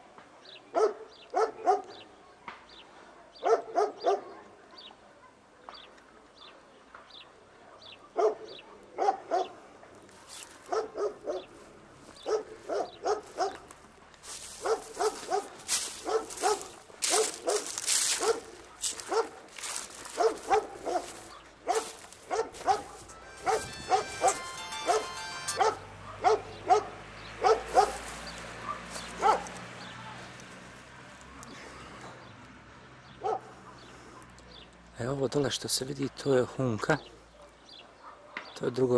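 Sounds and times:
dog barking: 0.7s - 2.1s, 3.4s - 4.6s, 7.7s - 9.6s, 10.6s - 11.5s, 12.2s - 13.7s, 14.4s - 29.6s, 33.1s - 34.3s, 37.2s - 38.6s.

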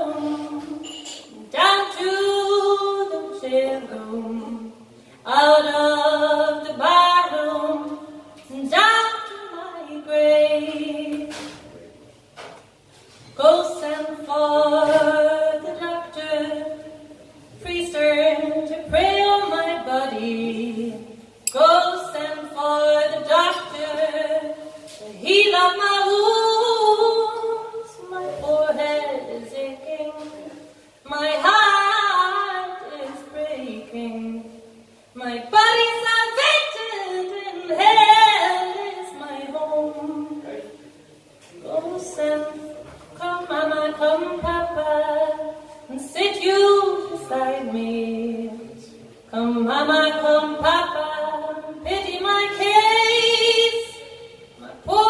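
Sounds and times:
woman singing unaccompanied: 0.0s - 11.4s, 13.4s - 40.6s, 41.6s - 55.0s.

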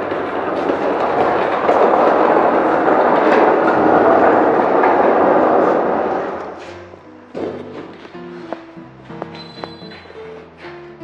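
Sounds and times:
wooden frame rumbling on concrete: 0.0s - 11.0s.

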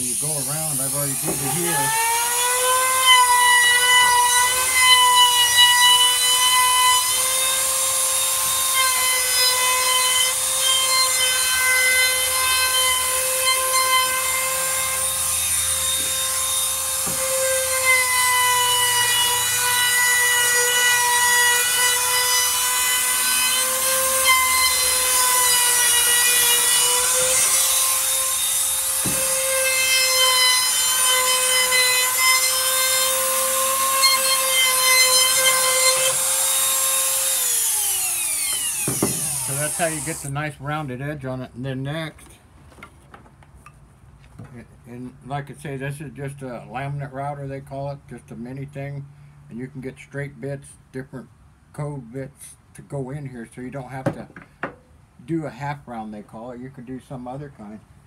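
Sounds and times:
trim router whining: 0.0s - 40.3s.

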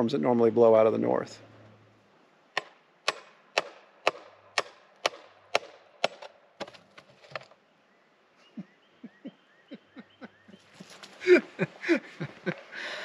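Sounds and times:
wooden knocks of post pounding: 2.6s - 7.5s.

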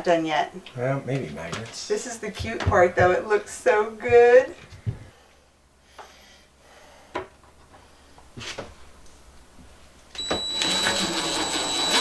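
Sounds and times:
impact driver rattling and whining: 10.2s - 12.0s.

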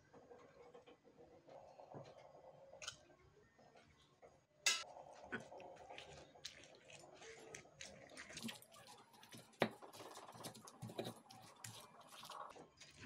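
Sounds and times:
tomatoes squishing: 5.3s - 13.0s.

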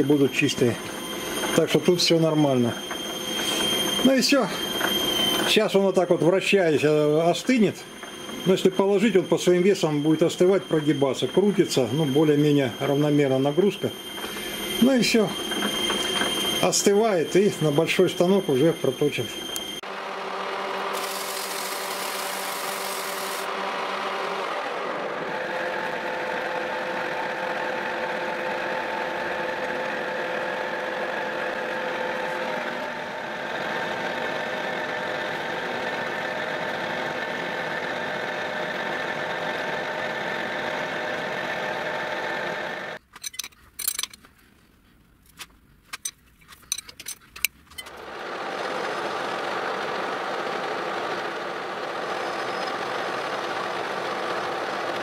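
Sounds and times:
metal lathe humming: 0.0s - 43.0s, 47.8s - 55.0s.

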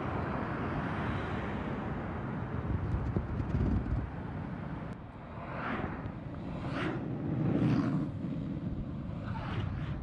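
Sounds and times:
road traffic passing: 0.0s - 10.0s.

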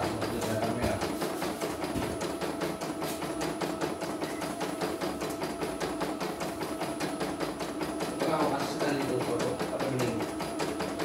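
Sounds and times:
embroidery machine stitching: 0.0s - 11.0s.

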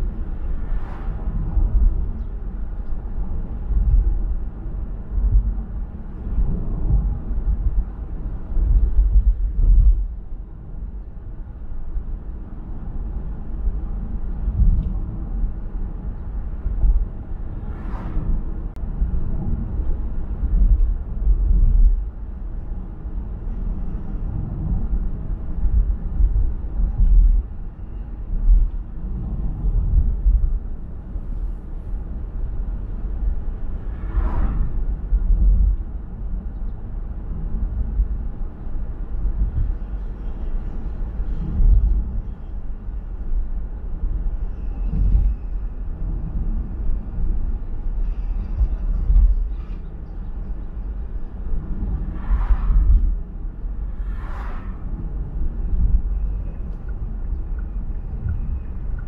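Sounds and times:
car road and wind noise: 0.0s - 59.0s.

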